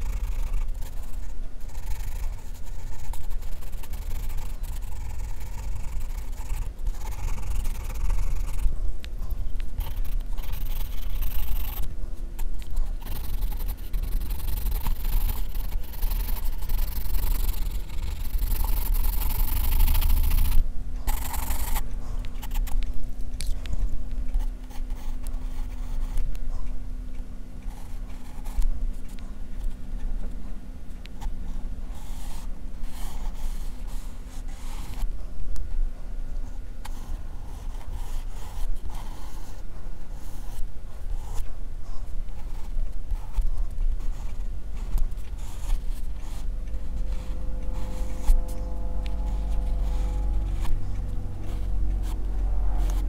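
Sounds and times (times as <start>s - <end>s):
pencil scratching on paper: 0.0s - 22.8s, 24.3s - 26.3s, 27.6s - 29.8s, 31.1s - 35.1s, 36.9s - 41.5s, 42.3s - 53.0s
low rumble: 43.4s - 53.0s.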